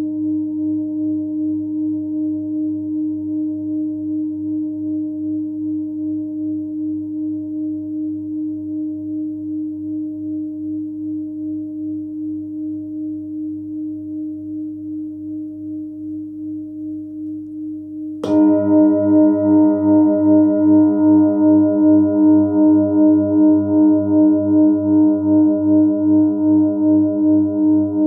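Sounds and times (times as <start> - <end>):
singing bowl ringing: 0.0 - 28.0
felt mallet striking bowl: 17.1 - 25.7.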